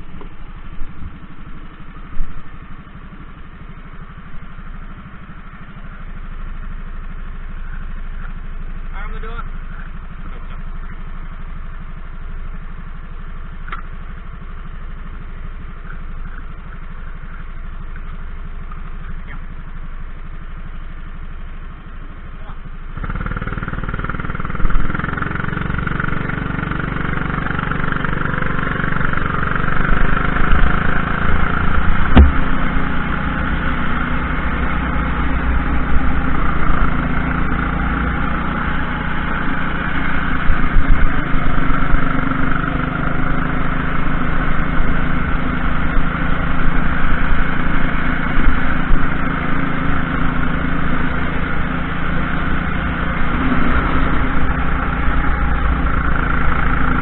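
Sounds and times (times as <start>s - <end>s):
kart engine running at speed: 0.0s - 57.0s
sharp knock: 32.0s - 32.8s.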